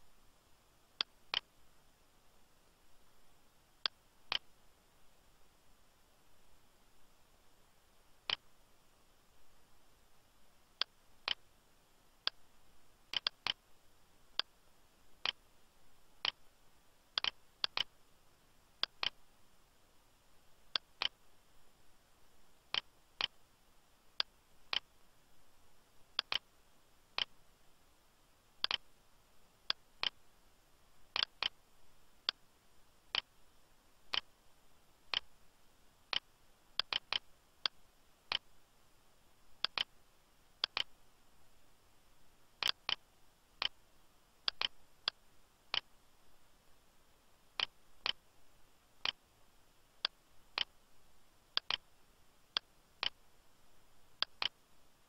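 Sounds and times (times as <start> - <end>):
faint steady hiss: 0.0 - 55.0
computer mouse clicking: 3.8 - 4.5, 13.1 - 13.6, 17.2 - 17.9, 18.8 - 19.2, 22.7 - 23.4, 26.2 - 26.5, 28.6 - 28.9, 31.2 - 31.6, 34.1 - 34.4, 36.1 - 38.4, 39.6 - 39.9, 40.6 - 41.0, 42.6 - 43.8, 44.4 - 45.9, 47.6 - 48.2, 50.0 - 50.8, 51.6 - 51.9, 52.5 - 53.2, 54.2 - 54.6.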